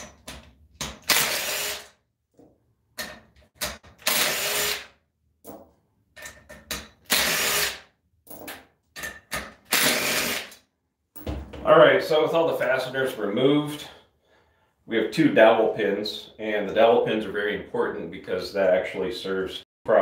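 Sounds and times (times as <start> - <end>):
bolts clicking and knocking: 0.0 - 1.1, 2.3 - 4.0, 5.3 - 7.1, 8.2 - 9.7.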